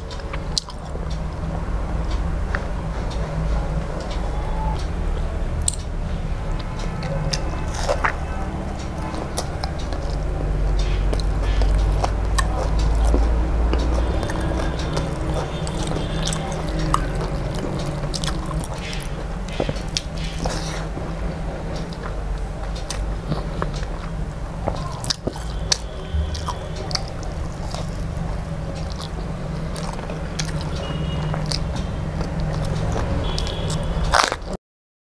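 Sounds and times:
wet chewing: 0.0 - 4.9, 5.6 - 5.9, 6.5 - 34.6
low steady hum: 0.0 - 34.4
mouth clicks: 0.0 - 34.6
fingers mixing rice on steel plate: 6.6 - 34.4.

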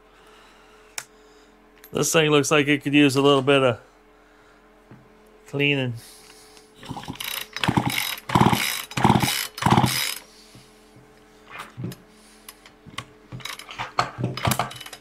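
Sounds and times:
chainsaw starter cord pulled: 6.8 - 10.2, 13.4 - 13.8, 14.4 - 15.0
engine turning over: 6.8 - 10.3, 13.3 - 15.0.

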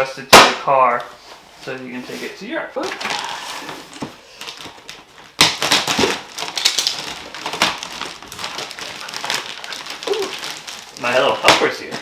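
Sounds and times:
plastic wrap crinkling: 2.3 - 12.0.

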